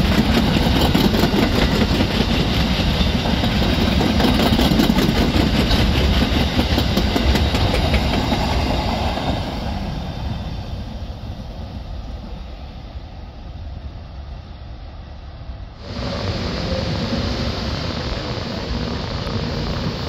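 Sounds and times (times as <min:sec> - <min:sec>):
wheels clacking over rail joints: 0:00.0 - 0:09.5
freight train rumbling past: 0:00.0 - 0:20.0.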